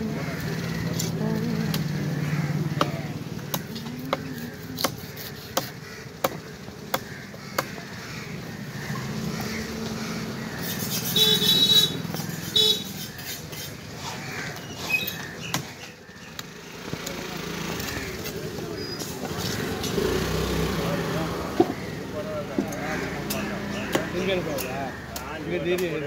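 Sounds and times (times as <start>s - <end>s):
murmur of voices: 0.0s - 10.4s, 16.8s - 26.0s.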